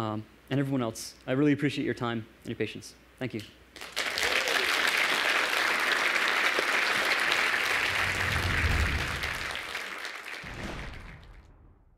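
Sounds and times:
audience applauding: 3.8s - 11.3s.

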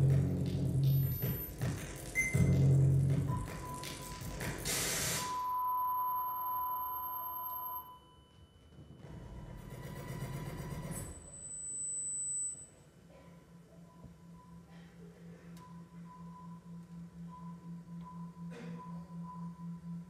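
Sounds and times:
steady beep-like tone: 2.2s - 4.3s, 5.1s - 9.0s, 9.6s - 12.8s, 13.8s - 15.0s, 15.6s - 20.0s.

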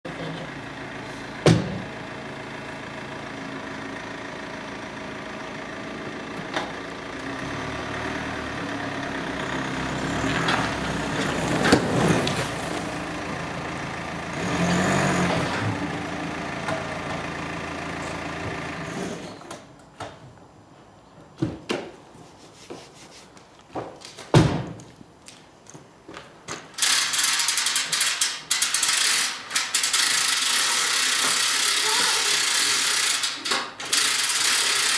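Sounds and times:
vehicle engine running: 0.1s - 19.3s, 30.2s - 33.0s
hand winch ratcheting: 26.6s - 34.9s.

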